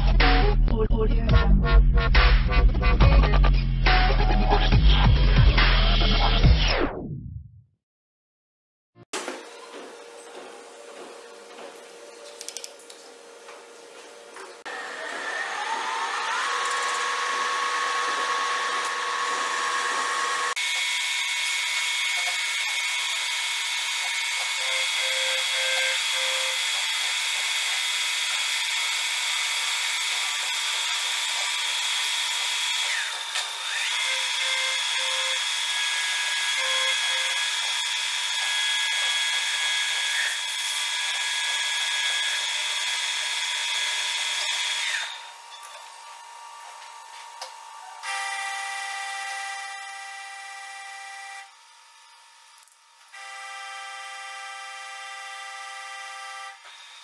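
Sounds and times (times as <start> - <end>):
lathe high whine: 14.7 - 57.0.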